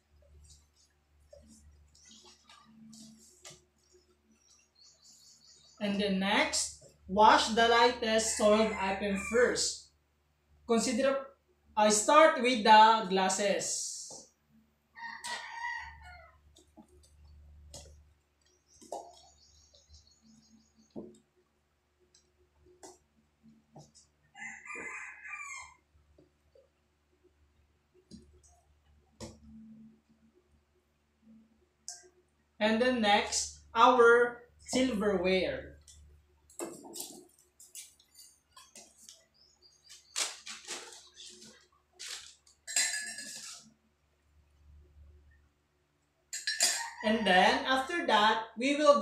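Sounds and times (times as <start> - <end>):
rooster crowing: 8.2 - 9.7, 15.0 - 16.4, 24.3 - 25.8
silverware clinking in metal basin: 42.6 - 43.6, 46.3 - 47.0.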